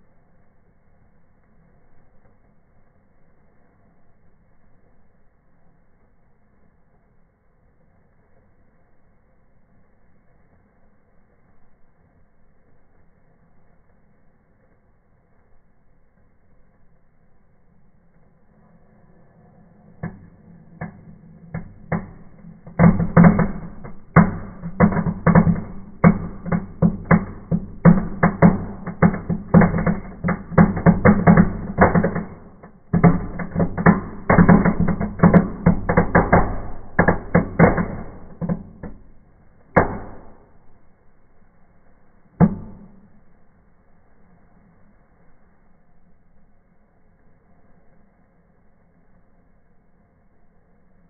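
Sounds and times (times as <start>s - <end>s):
firecracker crackling pops: 8.0s - 43.4s.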